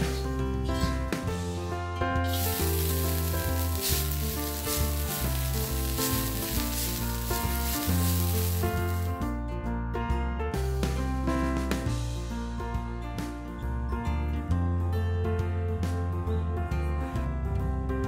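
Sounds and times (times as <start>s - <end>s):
background music: 0.0s - 18.0s
leaves sizzling in hot oil: 2.2s - 9.2s
wooden spatula stirring: 2.3s - 9.1s.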